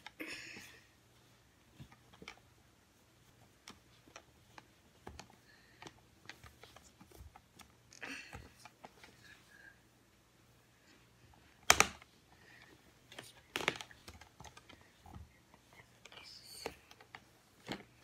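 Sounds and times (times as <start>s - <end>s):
plastic doll clicks and rustles: 1.6s - 2.6s, 3.2s - 9.3s, 11.3s - 18.0s.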